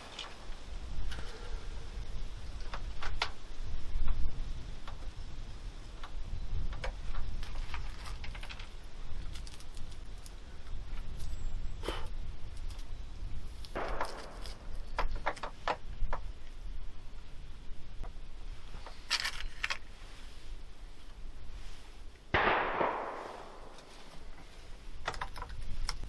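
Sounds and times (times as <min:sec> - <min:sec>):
short rustle: 0:18.4 - 0:22.1, 0:23.1 - 0:26.0
rifle metal parts clicking: 0:19.0 - 0:19.8.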